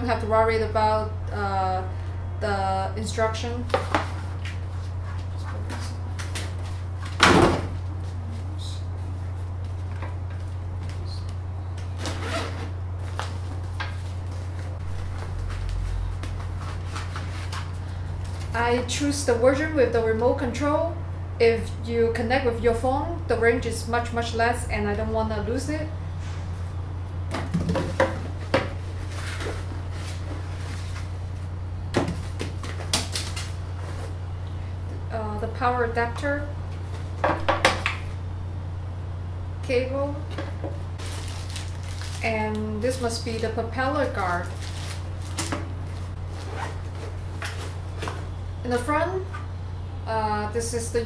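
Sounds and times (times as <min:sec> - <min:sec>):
steady low hum: 0:00.0 - 0:51.0
fabric bag rustling: 0:41.0 - 0:42.3, 0:44.2 - 0:48.3.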